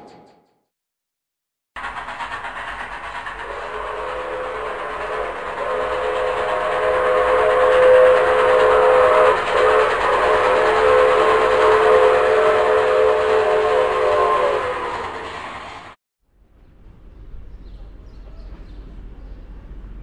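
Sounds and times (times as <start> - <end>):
moving train running noise: 1.8 - 16.0, 16.8 - 20.0
train horn blasts: 3.4 - 15.7.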